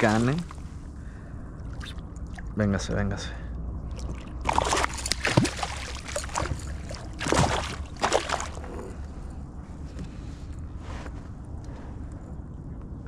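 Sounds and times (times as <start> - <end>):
water splashing: 0.0 - 0.7, 3.9 - 8.8.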